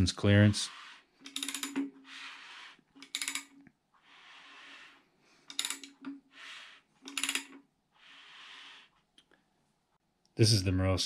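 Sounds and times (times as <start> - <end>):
ratchet wrench clicking: 1.3 - 1.8, 5.5 - 6.0, 7.1 - 7.5.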